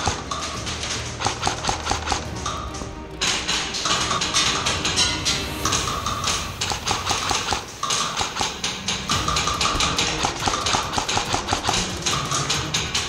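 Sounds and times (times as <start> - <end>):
airsoft guns firing full-auto bursts: 7.1 - 12.9.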